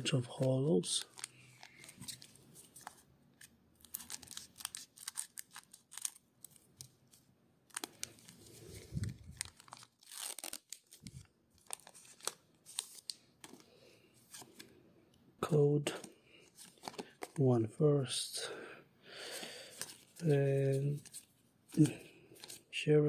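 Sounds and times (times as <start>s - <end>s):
cards rustling: 0.3s - 14.7s, 15.9s - 17.4s, 19.3s - 22.7s
foil wrapper crinkling and tearing: 0.8s - 3.0s, 3.8s - 13.2s.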